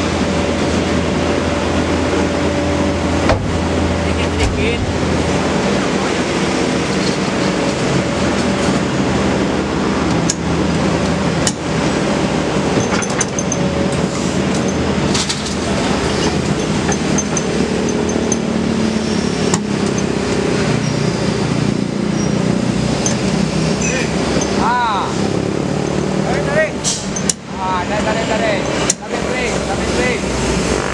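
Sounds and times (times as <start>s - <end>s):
excavator diesel engine running: 0.0s - 30.9s
bucket knocking against truck bed: 3.2s - 3.6s.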